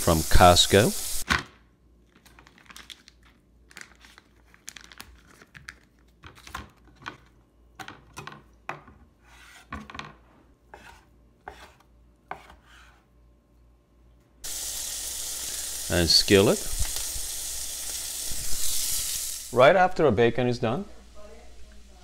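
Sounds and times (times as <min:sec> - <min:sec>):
knife scraping board: 0:09.2 - 0:09.9, 0:10.7 - 0:13.1
knife chopping on cutting board: 0:10.7 - 0:13.0.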